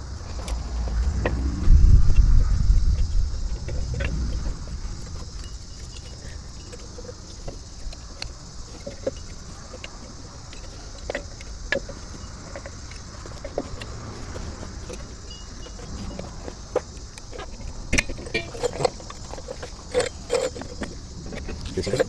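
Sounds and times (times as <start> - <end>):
low rumble: 0.0 - 6.6.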